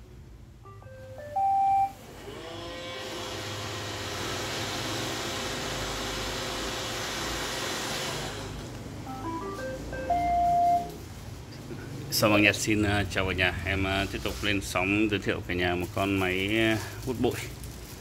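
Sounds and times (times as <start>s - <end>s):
robot vacuum beep tune: 0.7s - 2.0s, 9.1s - 11.0s
robot vacuum motor whirring: 2.1s - 8.6s.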